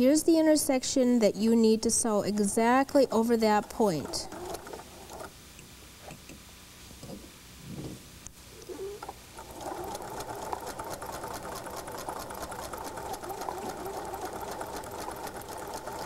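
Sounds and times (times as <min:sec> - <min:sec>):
sewing machine stitching: 0:03.5 - 0:05.3, 0:08.8 - 0:16.0.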